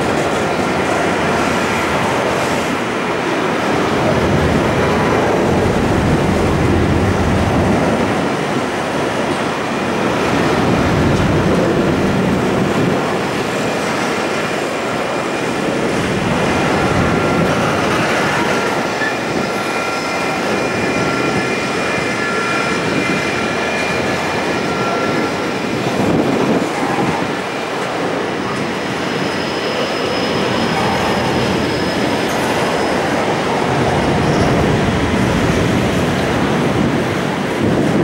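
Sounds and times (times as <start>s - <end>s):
train wheels rumbling on rail: 0.0s - 38.0s
high wheel squealing: 28.6s - 36.4s.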